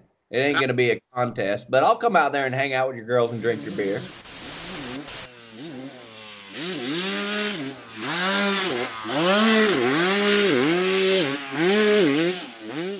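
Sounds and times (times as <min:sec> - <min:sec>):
motocross bike engine revving: 0:03.2 - 0:12.9.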